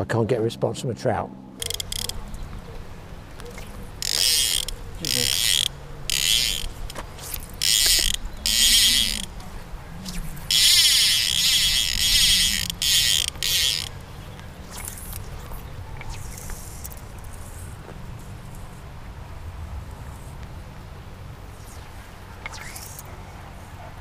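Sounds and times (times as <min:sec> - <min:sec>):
fly reel ratchet buzzing: 0:01.6 - 0:02.5, 0:03.4 - 0:14.0, 0:14.6 - 0:17.8, 0:21.5 - 0:23.1.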